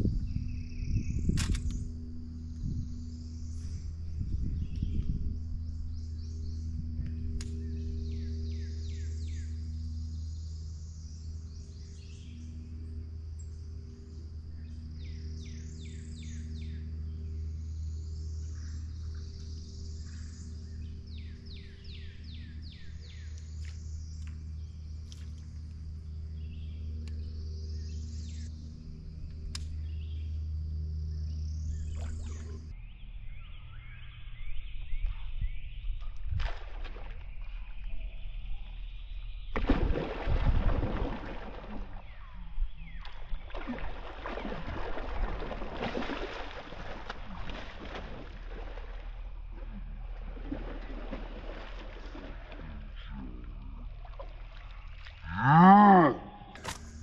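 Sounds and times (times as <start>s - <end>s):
high insect drone: 0.0s - 34.1s
low steady hum: 0.0s - 57.0s.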